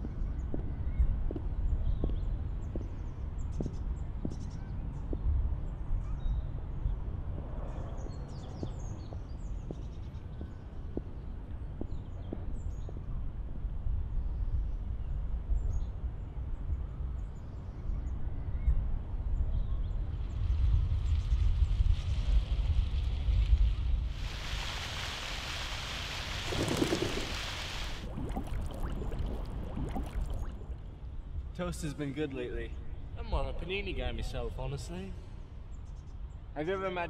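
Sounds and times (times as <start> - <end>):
birds chirping: 26.3 - 31.1.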